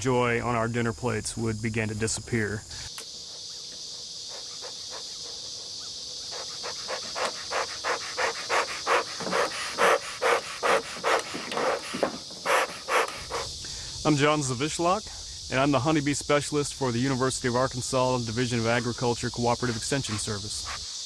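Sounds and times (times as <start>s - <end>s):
high insect hiss: 0.0s - 21.0s
smoker bellows puffing air: 4.0s - 14.0s.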